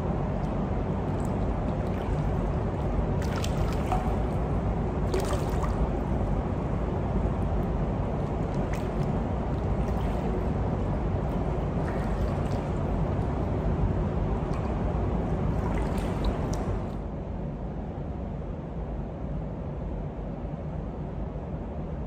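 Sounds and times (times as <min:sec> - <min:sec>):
small splashes and drips: 0:00.0 - 0:06.2, 0:07.2 - 0:17.0
water sloshing and lapping: 0:00.0 - 0:17.0
steady low rumble: 0:00.0 - 0:22.0.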